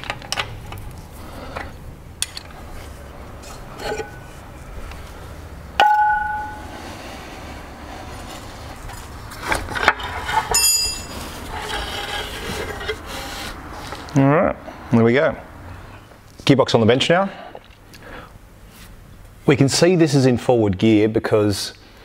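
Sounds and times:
metal tools clinking and knocking: 5.8s - 6.6s, 9.8s - 11.2s
sharp metallic clank: 5.8s - 6.7s
short high metallic ring: 5.8s - 6.8s, 10.5s - 11.1s.

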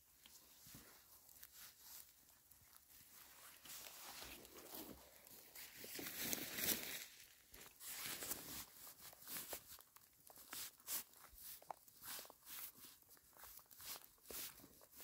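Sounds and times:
footsteps on forest floor: 3.1s - 9.7s.

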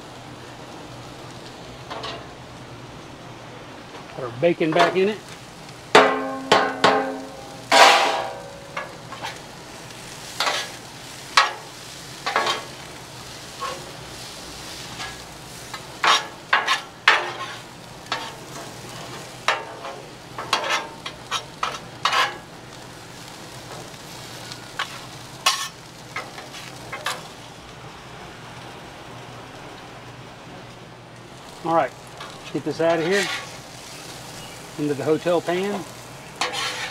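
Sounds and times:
food sizzling on griddle: 0.0s - 36.9s
metal spatulas scraping griddle: 6.1s - 9.4s, 10.3s - 10.8s, 11.4s - 12.7s, 13.5s - 22.5s, 24.8s - 27.3s, 32.2s - 33.9s, 35.1s - 36.9s.

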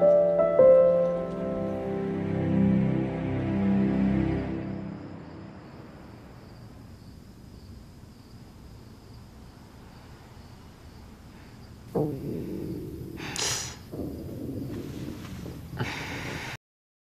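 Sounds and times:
music: 0.0s - 6.1s
crickets chirping: 0.3s - 16.6s
low hiss: 4.5s - 16.6s.

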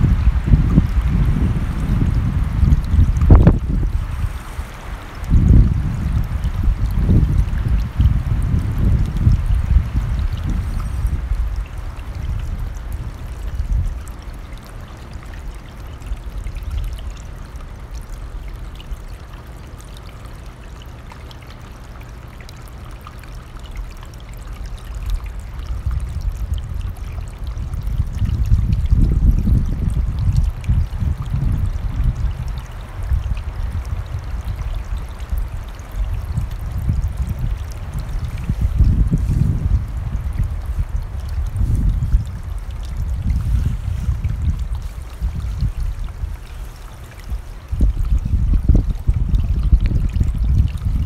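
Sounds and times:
wind buffeting microphone: 0.0s - 14.6s, 24.9s - 51.0s
stream rushing: 0.0s - 25.9s, 32.0s - 48.1s.

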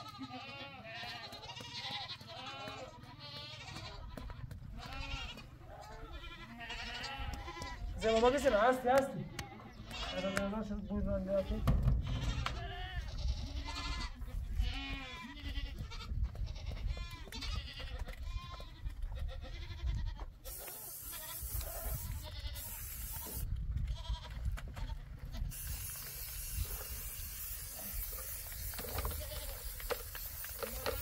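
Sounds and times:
goats bleating: 0.0s - 31.0s
steady hiss: 20.5s - 23.4s, 25.5s - 31.0s.

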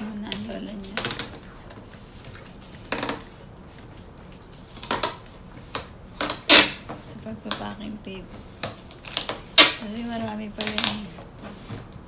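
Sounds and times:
packing tape ripping: 4.7s - 6.9s, 8.6s - 11.1s.

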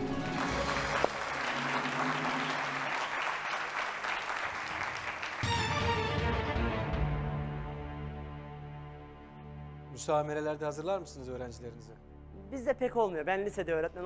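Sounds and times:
audience applauding: 0.0s - 6.6s
game-show music: 5.4s - 12.6s.

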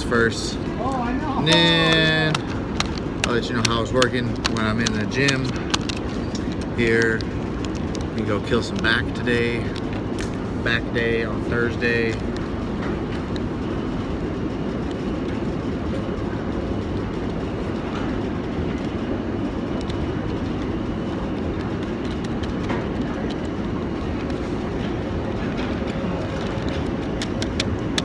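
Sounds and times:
foil sachet ticks and rustles: 1.0s - 12.5s.

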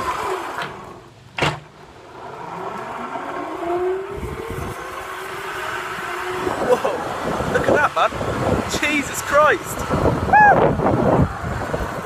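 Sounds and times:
wind rushing over microphone: 3.6s - 12.0s.

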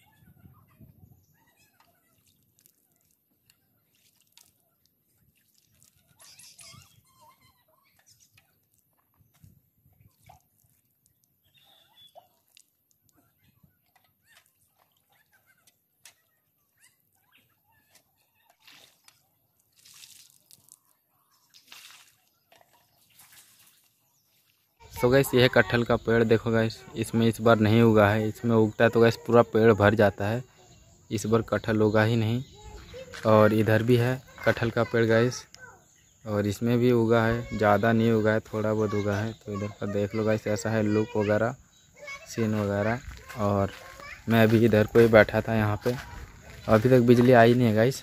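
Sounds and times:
water splashing and dripping: 1.7s - 7.0s, 8.0s - 16.4s, 17.8s - 30.3s, 42.0s - 48.0s
water splashing on concrete: 1.8s - 6.9s, 18.5s - 24.0s.

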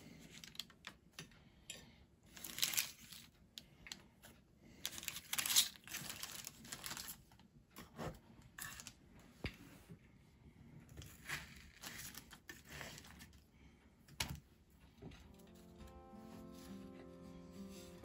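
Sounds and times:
baking parchment crinkling: 2.3s - 3.6s, 4.7s - 7.5s, 11.0s - 13.4s.

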